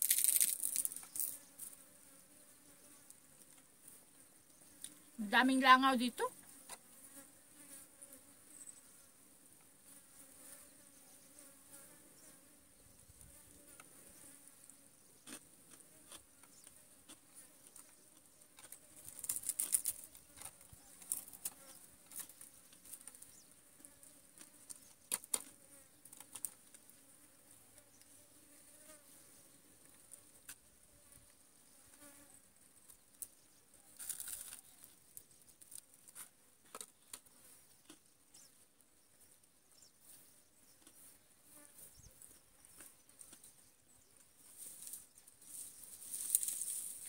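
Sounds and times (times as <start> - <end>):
flies buzzing: 0.0 - 32.6, 44.5 - 47.0.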